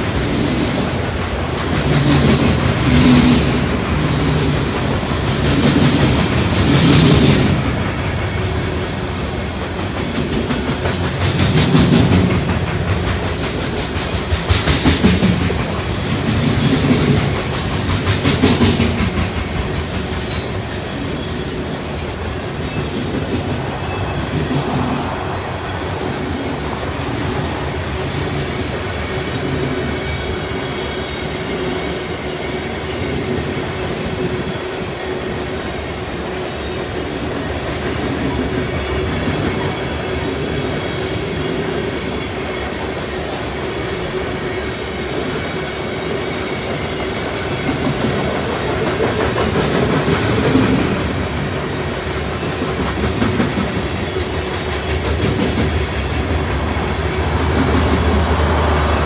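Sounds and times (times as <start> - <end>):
train wheels rumbling on rails: 0.0 - 59.0
wheels clacking: 0.7 - 28.8, 47.6 - 59.0.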